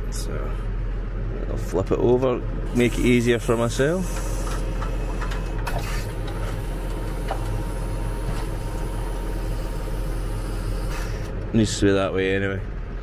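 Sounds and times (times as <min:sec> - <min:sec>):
tractor engine running: 0:01.6 - 0:11.8
hydraulics turning plough: 0:02.7 - 0:11.6.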